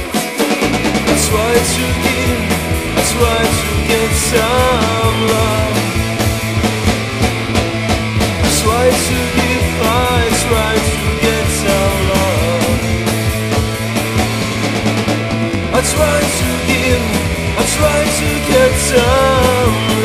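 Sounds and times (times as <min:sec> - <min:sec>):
guitar-driven power-pop rock: 0:00.0 - 0:20.0.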